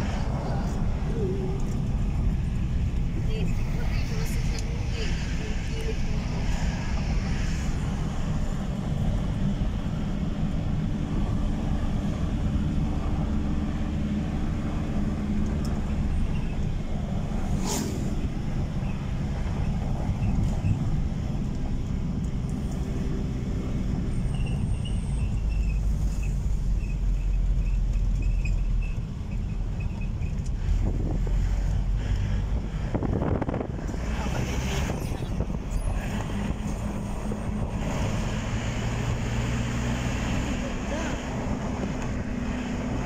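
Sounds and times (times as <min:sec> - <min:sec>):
vehicle engine hum: 0:00.0 - 0:43.0.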